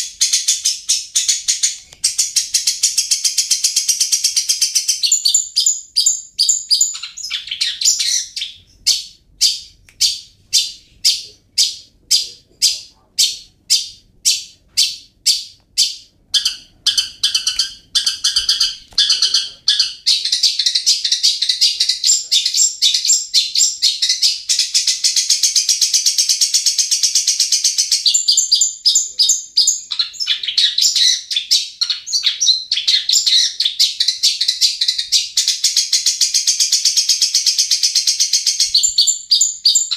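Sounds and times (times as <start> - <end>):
bird singing sharp high notes: 4.2 - 25.0.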